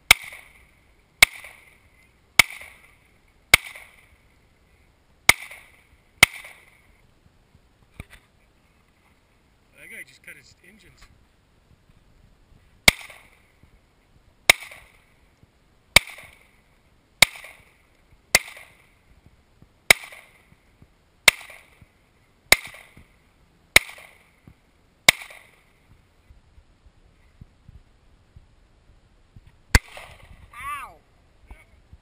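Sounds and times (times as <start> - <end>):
handgun shots: 2.4 - 2.8, 12.9 - 13.4, 25.1 - 25.6.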